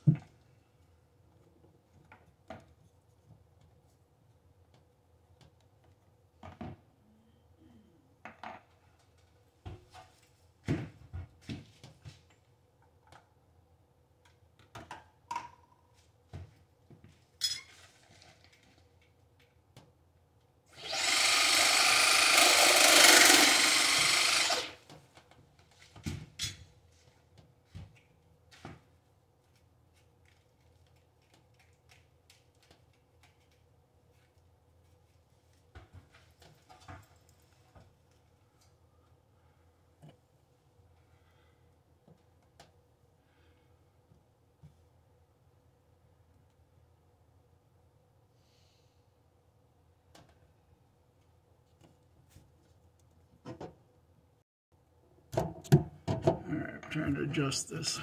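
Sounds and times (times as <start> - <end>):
loud rough power tool: 20.7 - 24.8.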